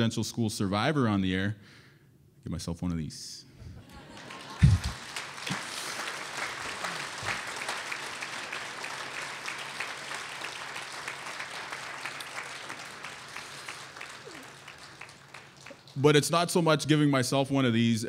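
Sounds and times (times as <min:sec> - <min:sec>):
audience applauding: 0:03.9 - 0:16.7.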